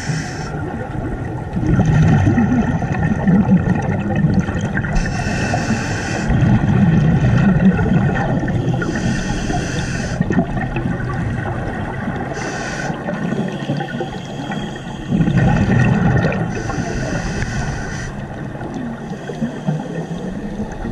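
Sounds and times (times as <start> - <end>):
regulator hissing inhalations: 0.0 - 0.5, 5.0 - 6.3, 8.8 - 10.2, 12.4 - 13.0, 16.5 - 18.2
bubbly exhalations: 1.6 - 8.5, 15.1 - 16.7.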